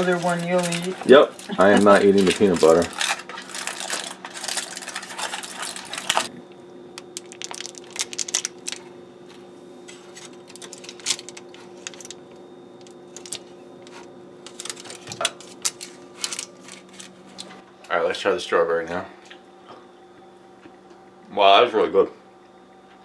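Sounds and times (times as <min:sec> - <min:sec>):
aluminum foil crinkling: 0:00.0 - 0:06.3, 0:07.0 - 0:08.9, 0:10.0 - 0:17.6.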